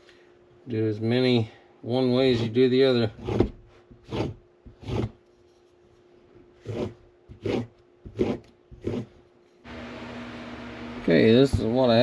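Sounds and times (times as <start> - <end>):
knife scraping on strop: 2.2 - 5.7, 6.6 - 9.2.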